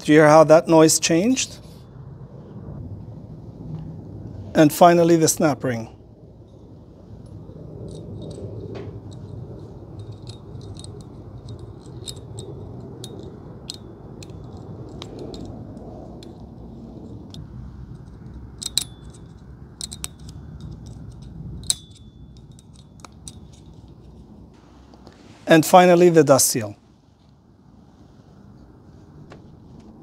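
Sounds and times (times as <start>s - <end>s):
metallic clicks and scrapes: 6.5s - 25.2s.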